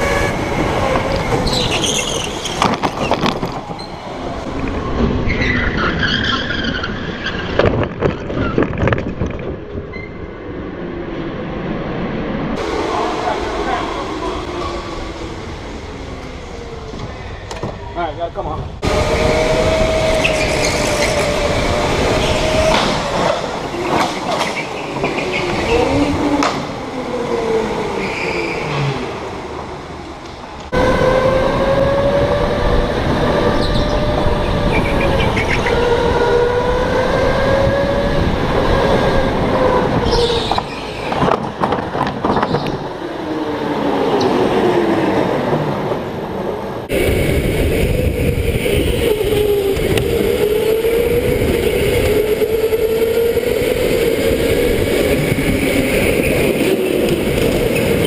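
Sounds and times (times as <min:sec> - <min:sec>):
knocks and rattles: 0:07.5 - 0:09.9
electric go-kart motors whining: 0:18.8 - 0:29.5, 0:30.2 - 0:45.1, 0:46.8 - 0:58.0.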